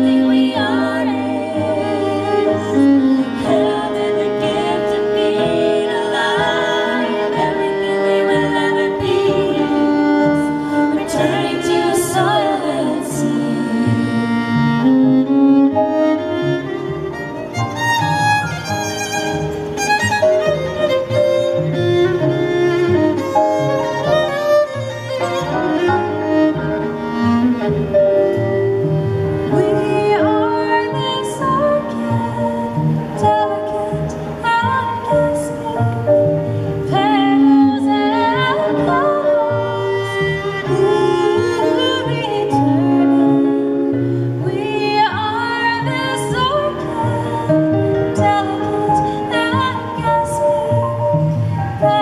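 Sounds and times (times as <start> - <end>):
woman singing slow song: 0.0 - 14.6, 36.8 - 52.0
cello: 0.0 - 52.0
violin: 0.0 - 52.0.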